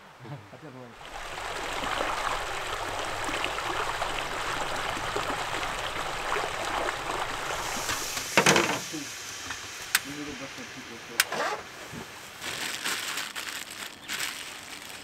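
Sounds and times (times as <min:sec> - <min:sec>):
flowing water rushing: 0:00.9 - 0:12.4
loud burst of noise: 0:07.8 - 0:11.2.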